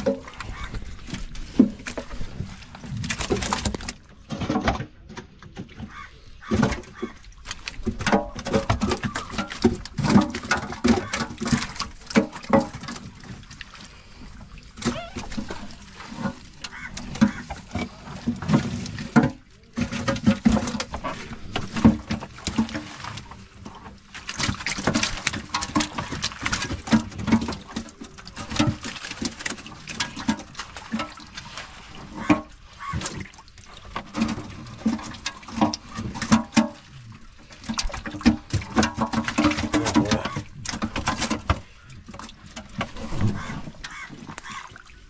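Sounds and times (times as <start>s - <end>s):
water splashing and sloshing: 0.0s - 45.0s.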